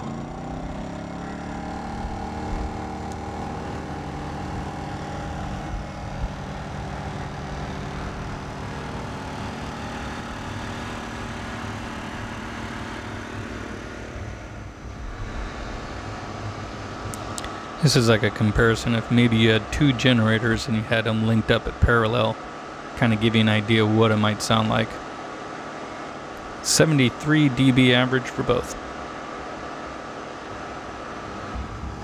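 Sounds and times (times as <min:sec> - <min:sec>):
generators running: 0:00.0 - 0:32.0.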